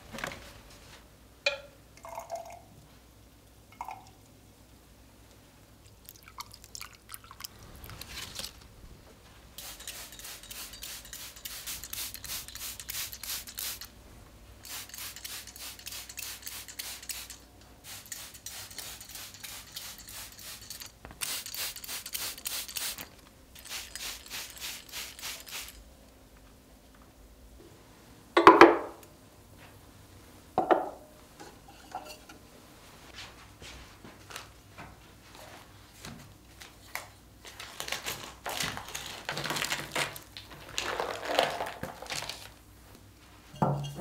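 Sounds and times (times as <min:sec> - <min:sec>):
plant mister spraying water: 0:09.6 - 0:13.9, 0:14.6 - 0:25.8.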